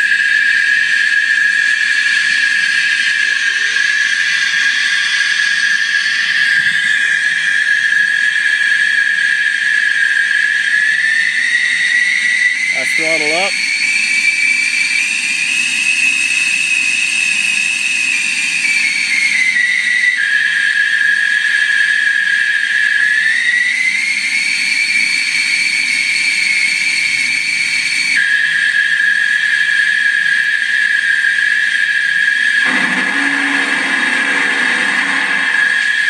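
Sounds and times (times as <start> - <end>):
simulated jet engine whine: 0.0 - 36.0.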